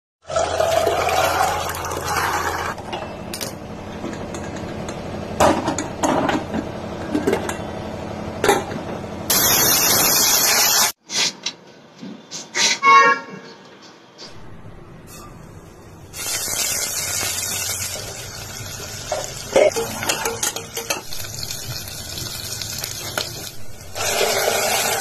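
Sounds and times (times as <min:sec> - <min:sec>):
chickpeas and water pouring: 0:00.3 - 0:02.8
steam hissing from pressure cooker: 0:09.3 - 0:11.0, 0:16.2 - 0:19.9, 0:21.2 - 0:25.0.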